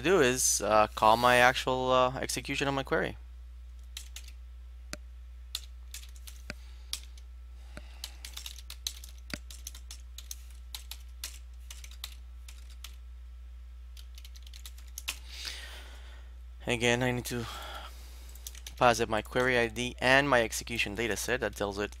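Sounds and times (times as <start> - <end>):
steady low hum: 0.0 - 22.0
keyboard typing: 3.8 - 4.4, 5.5 - 7.2, 7.8 - 13.0, 14.0 - 15.2, 18.3 - 18.8, 21.8 - 22.0.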